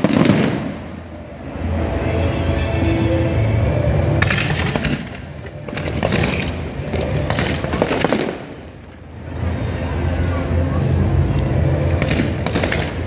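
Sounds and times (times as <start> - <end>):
fireworks bursting and crackling: 0.0 - 1.2, 4.1 - 9.0, 11.8 - 13.0.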